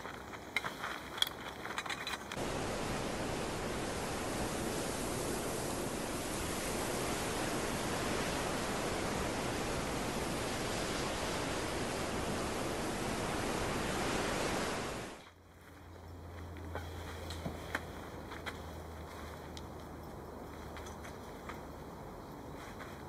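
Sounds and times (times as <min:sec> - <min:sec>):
steady rushing hiss: 0:00.0 - 0:15.2.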